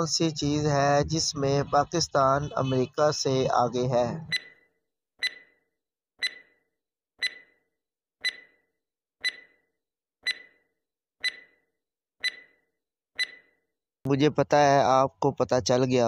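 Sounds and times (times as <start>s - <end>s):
stopwatch tick with ringing tone: 4.3s - 13.7s.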